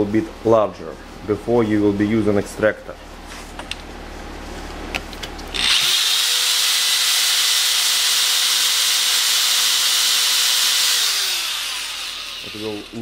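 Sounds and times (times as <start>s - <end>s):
electric drill whining: 5.6s - 13.0s.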